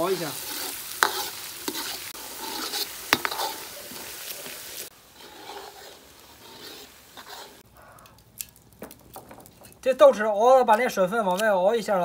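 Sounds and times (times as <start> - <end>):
sauce sizzling in wok: 0.0 - 7.7.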